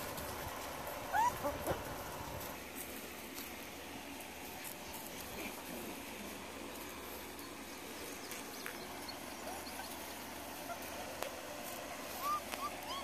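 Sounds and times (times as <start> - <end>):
puppies yipping and squeaking: 0.0 - 2.6, 8.3 - 13.0.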